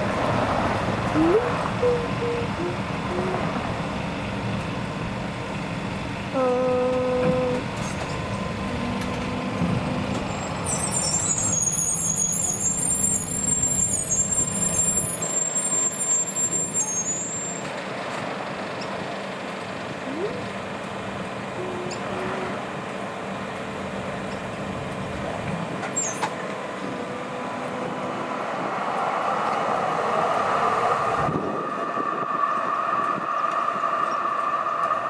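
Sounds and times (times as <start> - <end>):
rail vehicle rumbling: 0.0 - 35.0
high-pitched squeal: 7.5 - 17.7, 25.9 - 35.0.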